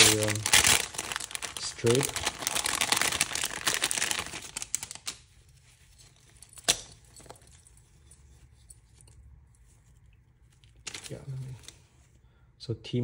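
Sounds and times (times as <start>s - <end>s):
packaging crinkling: 0.0s - 7.8s, 10.4s - 11.8s.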